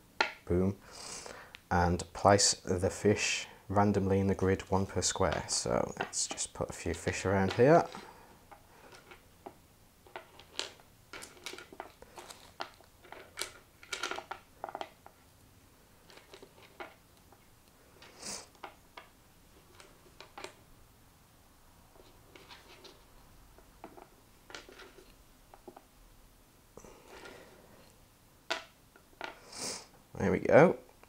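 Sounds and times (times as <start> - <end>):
wooden tokens clicking: 10.1 - 15.2.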